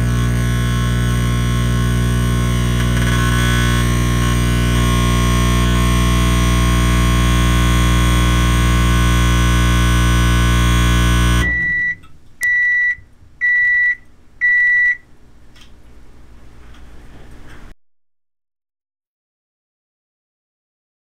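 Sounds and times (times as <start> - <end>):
microwave oven humming: 0.0 - 17.6
microwave beeps: 8.4 - 15.1.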